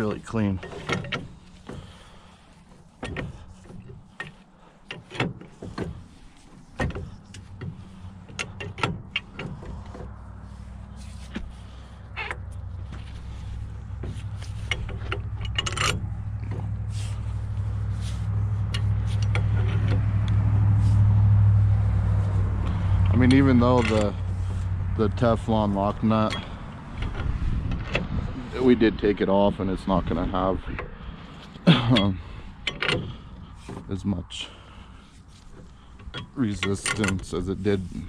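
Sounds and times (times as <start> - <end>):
engine drone: 0.0 - 38.0.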